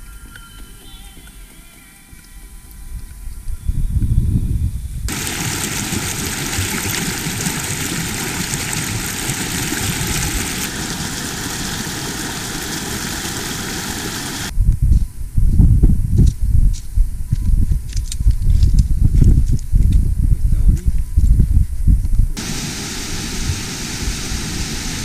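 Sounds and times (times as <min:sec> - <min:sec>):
wind rumble on microphone: 0:02.3 - 0:25.0
stream rushing over rocks: 0:05.1 - 0:14.5, 0:22.4 - 0:25.0.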